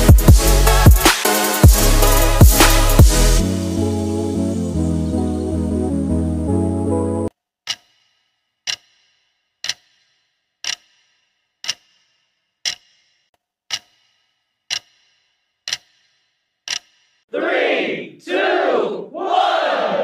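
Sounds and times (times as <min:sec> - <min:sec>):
clock ticking: 0:07.6 - 0:17.2
people shouting: 0:17.3 - 0:20.0.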